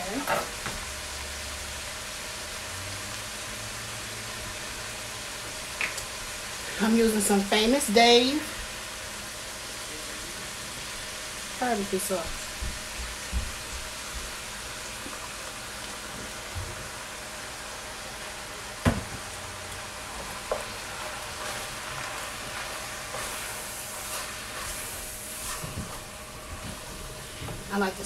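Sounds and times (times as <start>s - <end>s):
meat sizzling in a pot: 0.0s - 28.0s
wooden spoon stirring and scraping: 20.2s - 28.0s.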